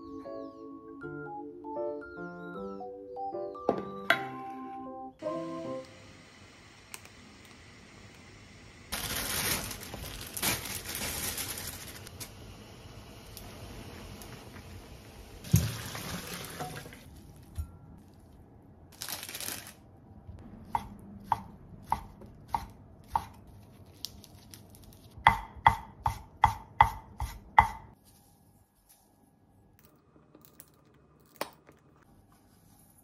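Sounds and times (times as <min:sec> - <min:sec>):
rustling of sprouts: 0:08.9 - 0:12.3, 0:18.9 - 0:19.8
knife chopping on wooden board: 0:20.7 - 0:23.4, 0:25.3 - 0:27.9.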